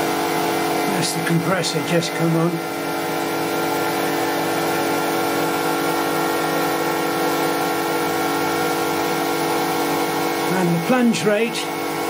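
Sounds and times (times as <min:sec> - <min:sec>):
air compressor running: 0:00.0 - 0:12.0.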